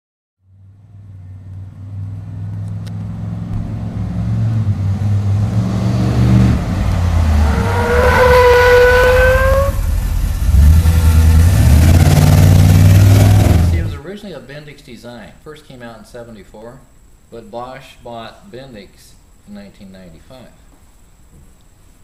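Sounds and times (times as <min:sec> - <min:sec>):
truck engine revving: 0:01.5 - 0:14.0
high squeal: 0:07.0 - 0:14.0.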